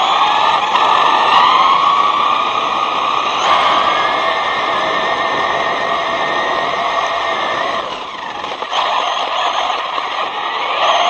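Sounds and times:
electric motor whining: 0.0 - 11.0.

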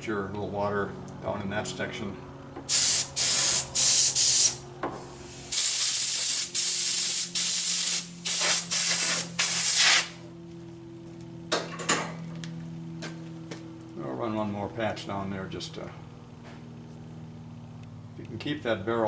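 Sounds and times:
steady low hum: 0.0 - 19.0
compressed air hissing: 2.7 - 10.2.

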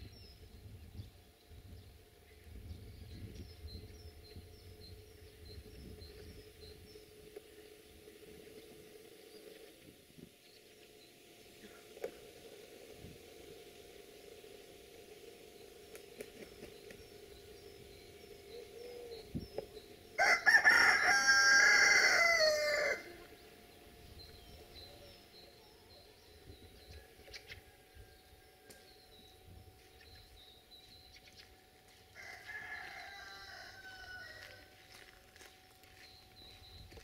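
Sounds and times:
small birds chirping: 0.0 - 37.0
rooster crowing: 20.2 - 23.3, 32.1 - 34.8.

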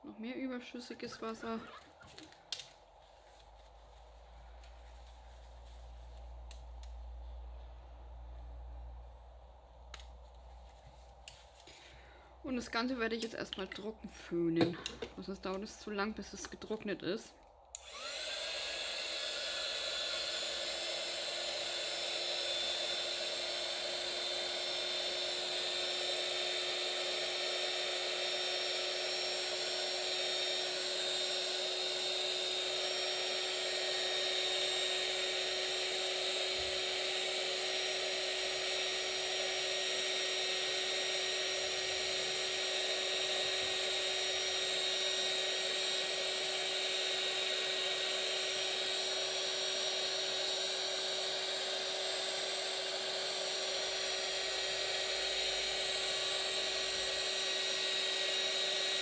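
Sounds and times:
heat tool blowing air: 0.0 - 16.8, 17.6 - 59.0
motor whine: 0.7 - 59.0.

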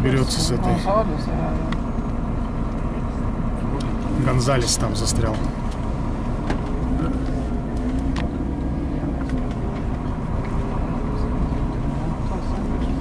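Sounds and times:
bus engine from inside cabin: 0.0 - 13.0.

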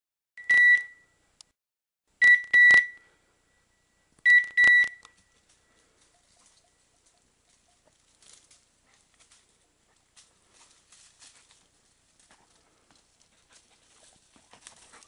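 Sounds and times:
short high beeps: 0.4 - 1.2, 2.2 - 5.4.

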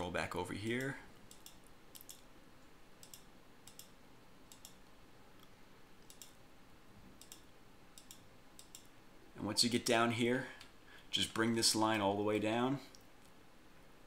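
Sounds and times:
faint computer mouse clicks: 3.0 - 4.8, 5.4 - 6.4, 7.2 - 8.9.

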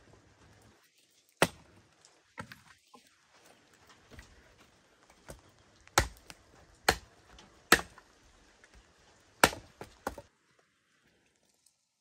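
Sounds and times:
blade chopping wood: 1.4 - 1.7, 5.3 - 8.0, 9.4 - 10.3.

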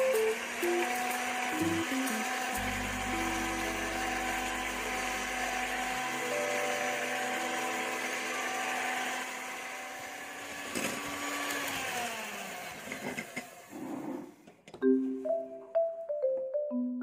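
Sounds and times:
electric hand mixer whisking: 0.0 - 14.0.

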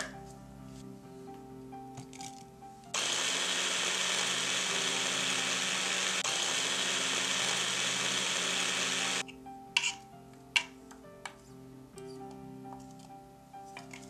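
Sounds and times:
electric blender running: 3.0 - 9.2.

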